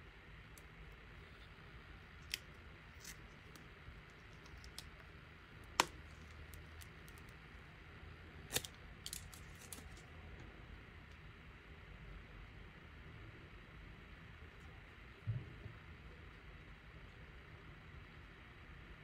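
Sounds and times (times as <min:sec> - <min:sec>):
plastic film crinkling: 0:08.5 - 0:10.1.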